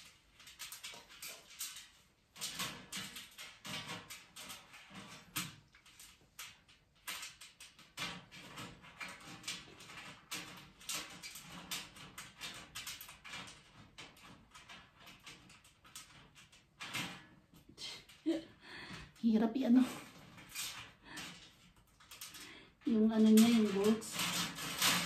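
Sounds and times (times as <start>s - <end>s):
hands assembling metal frame: 0.0s - 18.3s, 23.2s - 25.0s.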